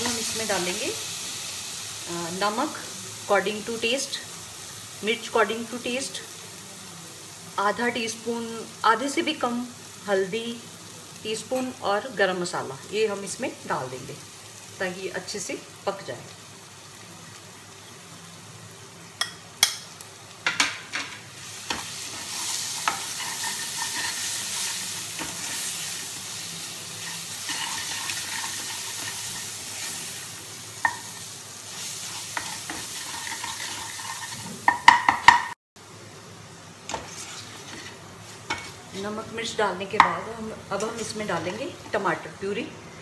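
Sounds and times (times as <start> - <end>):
masala sizzling in oil: 0.0 - 43.0
spoon scraping and clinking pan: 21.7 - 25.6, 32.3 - 34.9.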